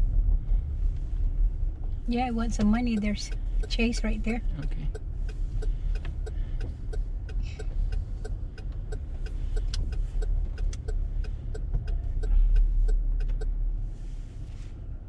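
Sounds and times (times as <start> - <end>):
car engine and road rumble: 0.0 - 15.0
steady ticking: 2.1 - 13.6.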